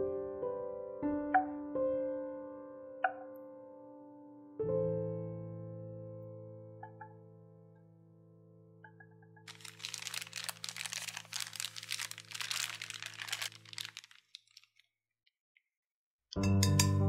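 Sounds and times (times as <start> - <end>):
soft piano notes: 0.0 - 13.9
plastic bag crinkling: 9.5 - 14.9.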